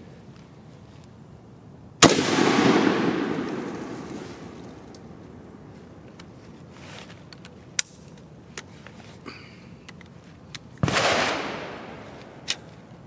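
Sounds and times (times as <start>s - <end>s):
rifle metallic clicks: 7.3s - 8.7s, 9.9s - 13.0s.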